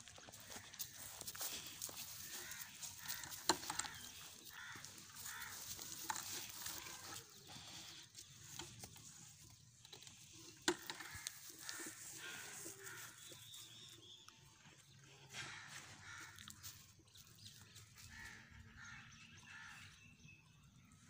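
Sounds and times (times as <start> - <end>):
goat drinking water: 0.0 - 15.1.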